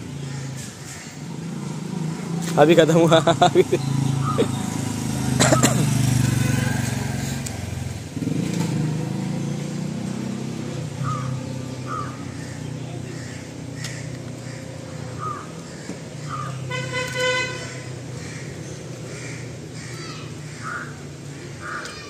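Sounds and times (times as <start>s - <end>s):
traffic engine hum: 0.0s - 22.0s
vehicle horn honking: 16.7s - 18.0s.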